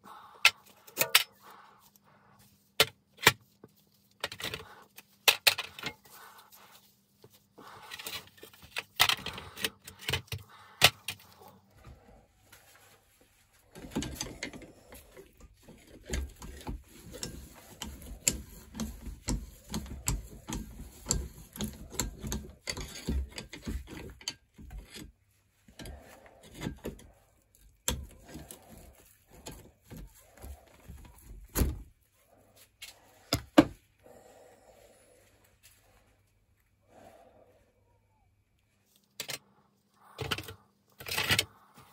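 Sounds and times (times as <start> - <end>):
screwdriver scraping metal: 13.8 - 25.1.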